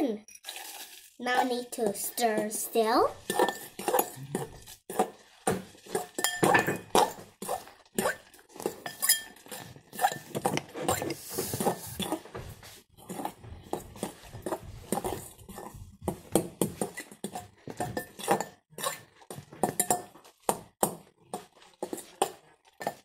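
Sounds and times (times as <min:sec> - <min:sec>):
fork scraping glass bowl: 0:03.2 - 0:12.3, 0:13.0 - 0:20.1, 0:21.3 - 0:23.0.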